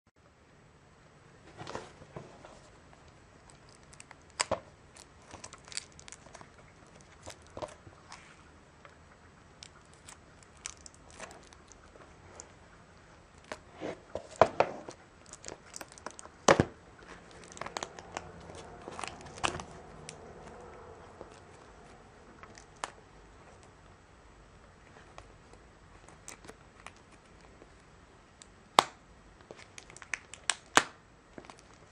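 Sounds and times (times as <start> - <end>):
plastic shrink-wrap tearing: 3.4 - 7.7, 15.2 - 16.5, 17.2 - 20.2.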